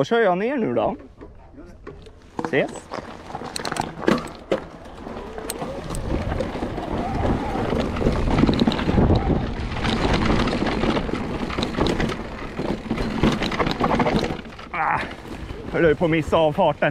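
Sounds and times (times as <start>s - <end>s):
bike tyres rumbling over dirt: 0.7s - 16.9s
sharp clicks and knocks: 0.9s - 14.7s
wind on microphone: 4.8s - 12.9s.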